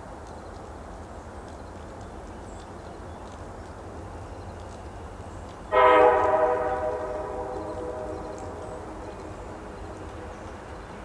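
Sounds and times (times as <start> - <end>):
locomotive air horn blast: 5.7 - 8.9.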